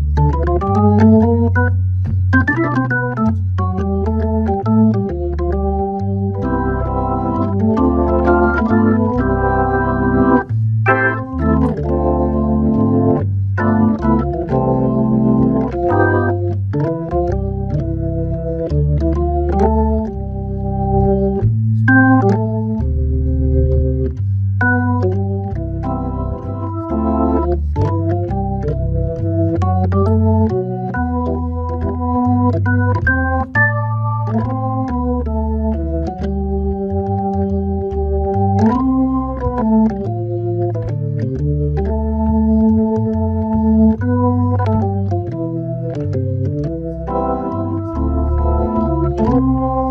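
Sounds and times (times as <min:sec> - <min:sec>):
jazz organ waltz: 0:00.0 - 0:49.9.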